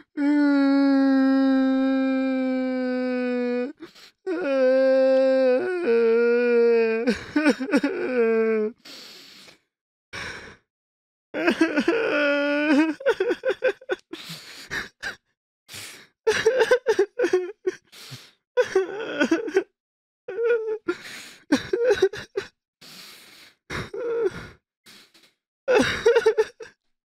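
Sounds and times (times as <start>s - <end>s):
person sobbing: 0.0s - 8.8s, 11.4s - 15.2s, 16.3s - 17.8s, 18.6s - 19.7s, 20.3s - 22.5s, 25.7s - 26.7s
sharp gasping breaths: 8.8s - 10.6s, 14.2s - 15.1s, 15.7s - 16.2s, 17.9s - 18.4s, 22.8s - 25.4s.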